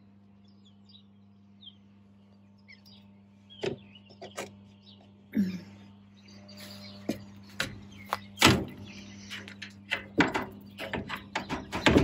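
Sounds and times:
steady low hum: 0.0s - 12.0s
irregular knocks and clicks: 9.4s - 12.0s.

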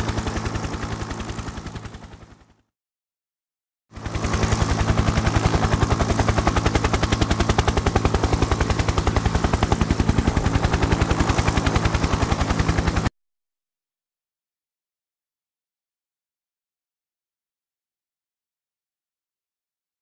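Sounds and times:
helicopter rotor beating: 0.0s - 2.6s, 3.9s - 13.1s.

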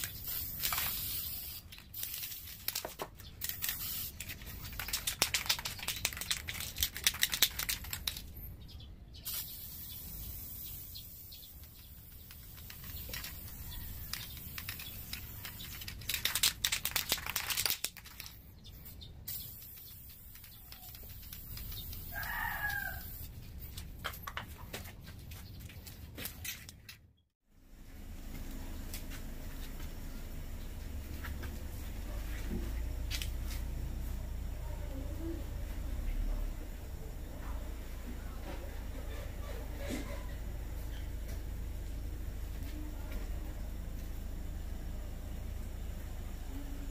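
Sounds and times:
crackling and rustling: 0.0s - 8.3s, 11.4s - 18.8s.

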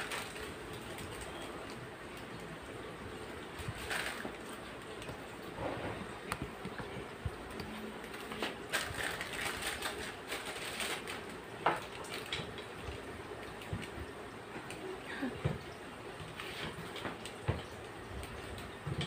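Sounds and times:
plastic bag crinkling: 0.0s - 2.6s, 3.2s - 5.4s, 7.8s - 13.9s.

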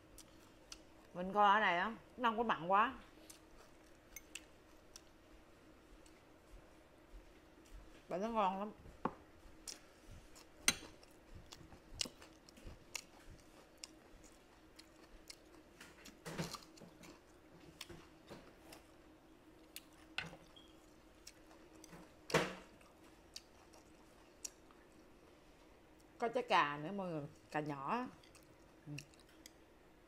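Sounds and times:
close chewing with crunches: 9.6s - 19.0s, 19.6s - 25.2s, 27.4s - 29.6s.

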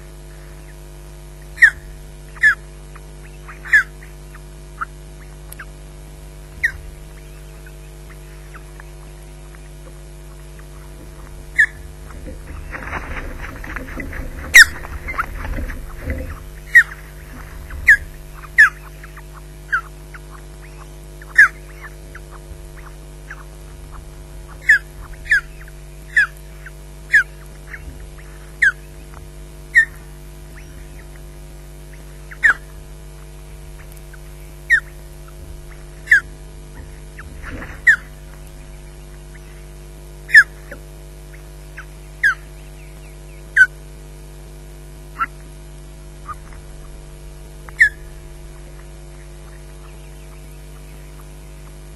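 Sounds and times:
low electrical hum: 0.0s - 51.9s
ospreys calling: 0.0s - 51.9s
rushing wings and rustling sticks: 10.6s - 18.7s.

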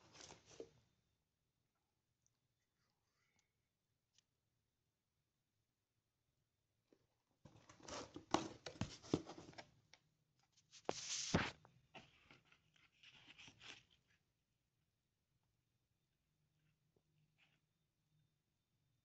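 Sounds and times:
cardboard and plastic rustling: 7.5s - 9.7s.

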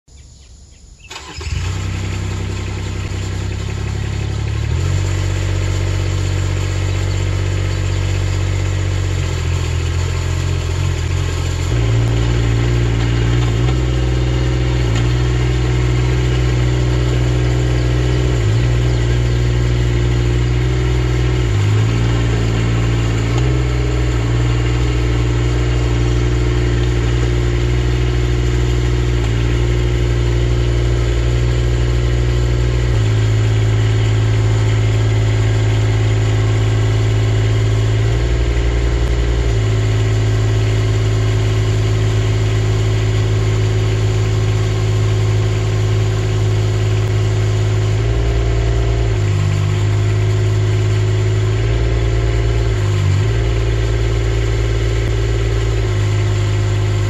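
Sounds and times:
tracked digger engine running: 1.1s - 57.0s.

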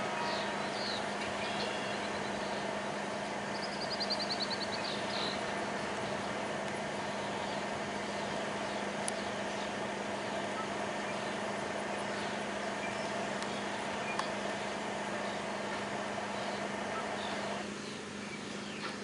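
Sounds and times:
low hum: 0.0s - 18.6s
sharp clicks: 9.0s - 9.3s, 13.4s - 14.6s.

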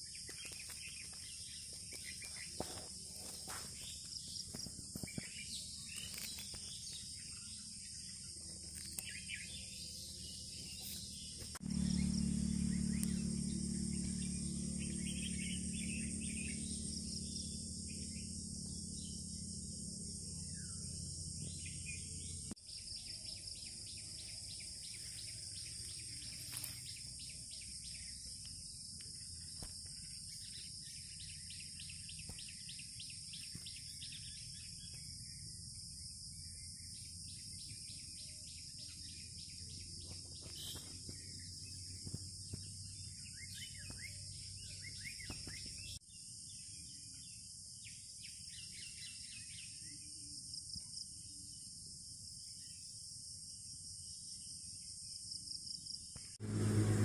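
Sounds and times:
birds chirping: 0.0s - 50.0s
high-pitched insect chorus: 0.0s - 56.3s.

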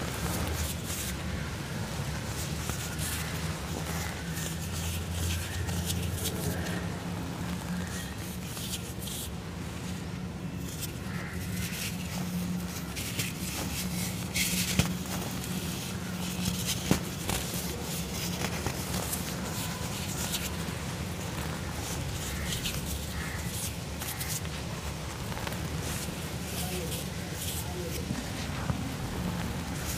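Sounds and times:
dust trickling: 0.0s - 29.9s
steady low hum: 0.0s - 29.9s
hands crumbling dry cement: 10.6s - 29.9s.

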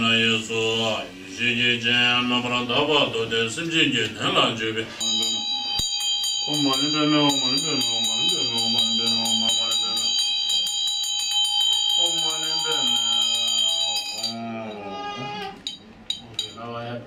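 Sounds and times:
low male ritual chanting: 0.0s - 5.6s, 6.5s - 10.8s, 11.9s - 15.6s
hand bell ringing: 5.0s - 14.9s, 15.6s - 16.7s.

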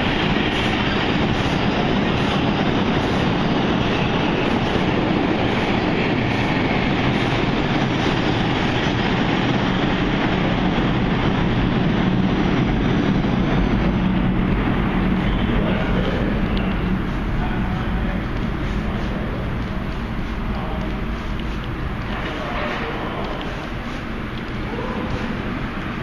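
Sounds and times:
train wheels on rail: 0.0s - 26.0s.

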